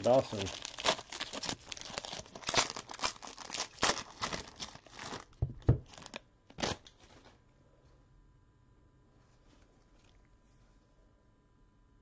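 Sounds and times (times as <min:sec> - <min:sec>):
plastic wrapper tearing and crinkling: 0:00.0 - 0:07.4.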